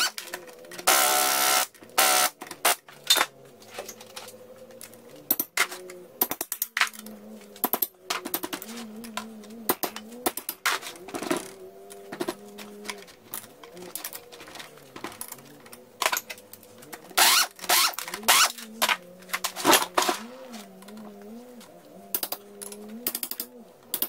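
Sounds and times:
loud scraping rustle: 8.2s - 21.8s
wrench clicking on metal: 22.1s - 24.0s.

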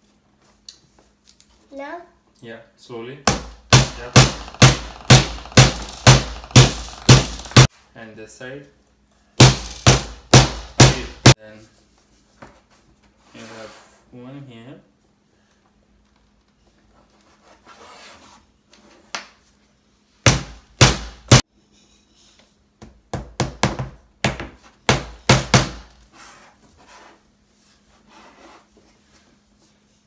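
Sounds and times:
hammer striking nails into wood: 3.3s - 7.7s, 9.4s - 11.4s, 20.3s - 21.4s, 23.1s - 25.9s.

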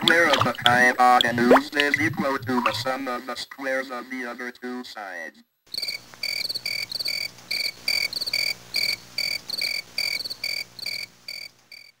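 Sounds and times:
crickets chirping: 5.7s - 11.9s.

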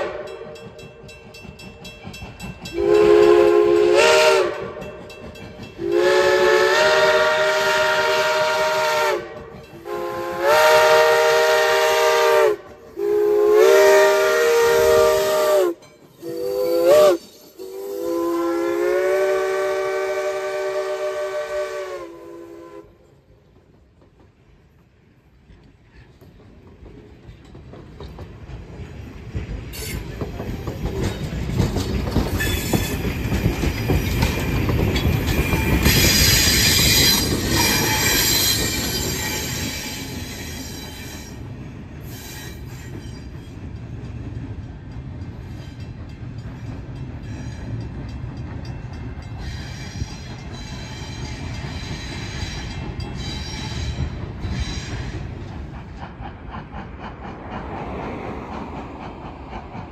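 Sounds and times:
train rumbling and wheel clicks: 0.0s - 59.9s
high wheel squeal: 33.9s - 41.4s, 42.0s - 43.3s, 49.4s - 55.3s.

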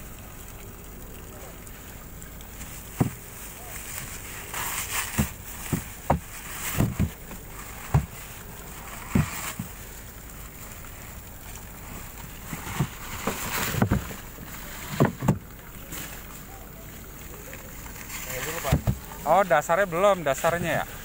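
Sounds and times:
dry ice chunks knocking: 2.6s - 9.8s, 18.3s - 19.4s
plastic sheeting rustling: 2.6s - 21.0s.

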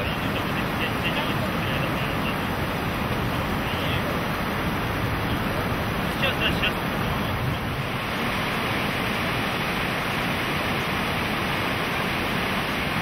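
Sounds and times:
river rapids rushing over rocks: 0.0s - 13.0s.

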